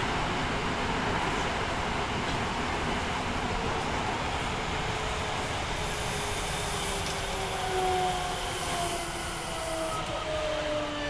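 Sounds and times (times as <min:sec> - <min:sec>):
rail running noise: 0:00.0 - 0:11.0
train inverter whining: 0:05.0 - 0:11.0.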